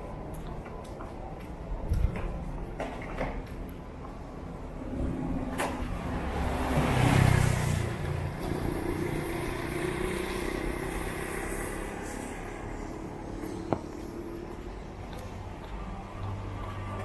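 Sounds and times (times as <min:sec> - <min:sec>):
car passing on wet street: 0:05.3 - 0:13.4.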